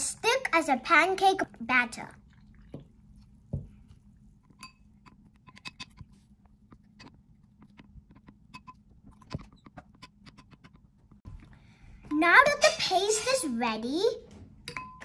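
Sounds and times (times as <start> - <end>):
spoon clinking against glass: 4.6 - 4.8, 14.7 - 15.0.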